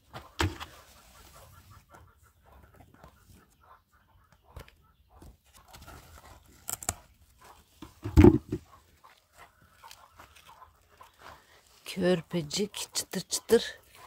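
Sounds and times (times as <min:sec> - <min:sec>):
plant leaves rustling and crackling: 0:05.4 - 0:07.8.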